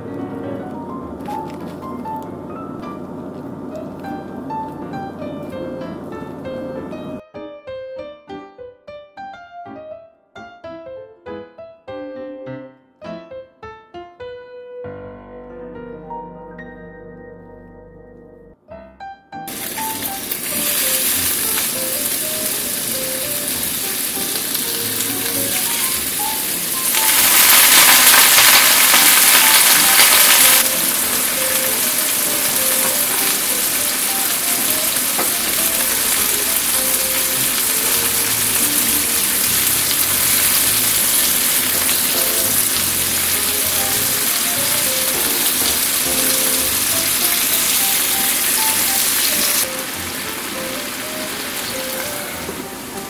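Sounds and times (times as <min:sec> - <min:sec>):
food sizzling in a frying pan: 0:19.5 - 0:53.0.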